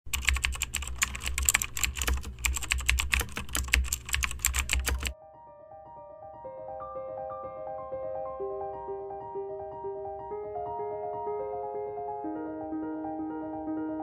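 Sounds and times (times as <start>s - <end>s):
rapid keyboard typing: 0.0s - 5.2s.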